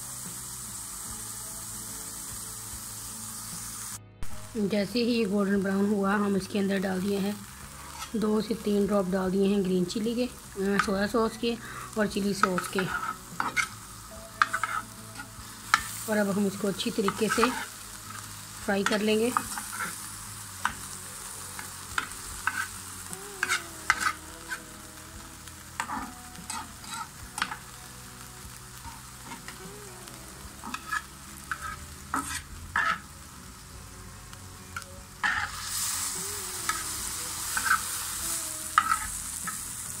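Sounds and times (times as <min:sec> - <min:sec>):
chicken sizzling in oil: 0:00.0 - 0:40.0
metal spatula scraping pan: 0:12.4 - 0:13.8, 0:14.4 - 0:16.0, 0:22.0 - 0:22.8, 0:23.4 - 0:24.6, 0:25.8 - 0:27.6, 0:30.6 - 0:33.1, 0:35.2 - 0:35.6, 0:37.5 - 0:38.0, 0:38.8 - 0:39.6.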